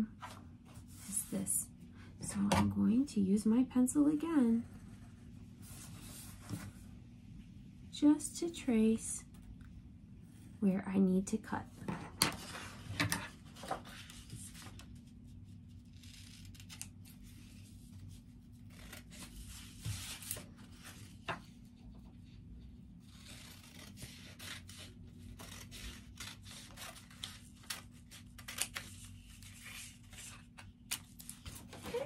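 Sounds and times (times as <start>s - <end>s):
paper rustling: 12.4s - 15.1s
scissors snipping paper: 15.8s - 17.2s, 23.0s - 32.0s.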